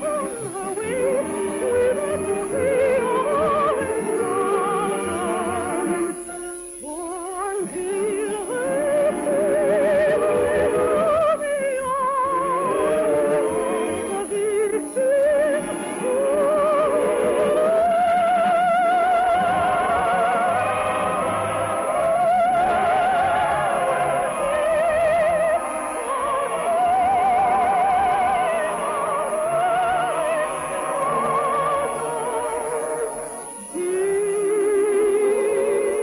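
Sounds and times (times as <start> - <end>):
high voice operetta singing: 0.0 - 36.0.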